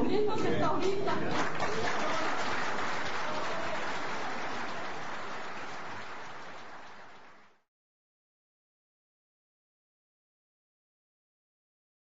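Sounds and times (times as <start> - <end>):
crowd applauding: 0.8 - 7.6.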